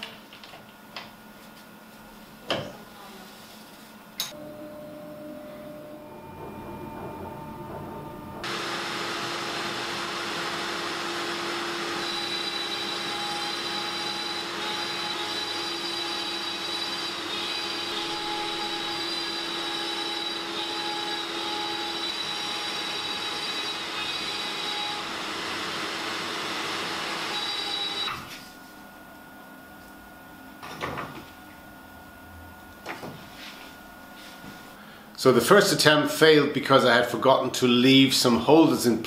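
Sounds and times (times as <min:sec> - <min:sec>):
dust extraction running: 0:04.4 - 0:28.3
router spindle cutting wood: 0:08.4 - 0:28.1.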